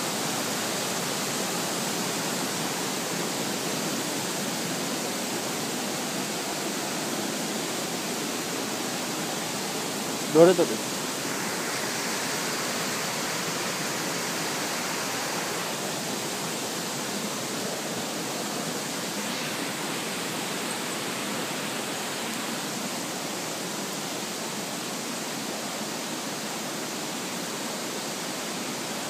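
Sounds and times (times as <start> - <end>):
falling water rushing: 0.0 - 29.0.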